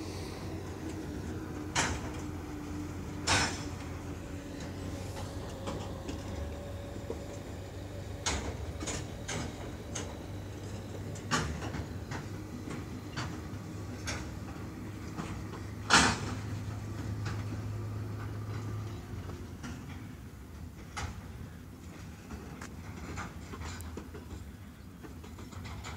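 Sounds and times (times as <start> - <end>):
low hum: 0.0 - 15.8
train wheels knocking over rail joints: 0.0 - 21.5.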